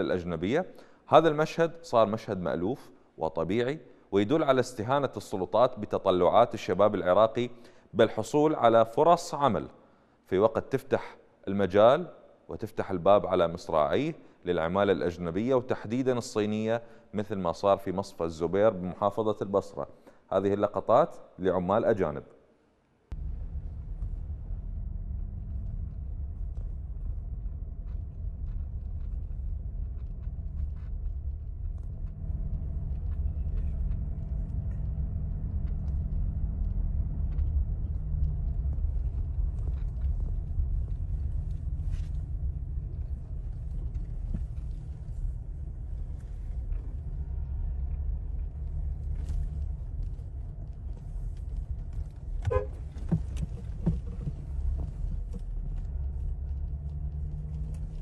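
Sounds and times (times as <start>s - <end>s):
industrial site rumble: 23.1s - 58.0s
brief horn-like sound: 52.4s - 52.9s.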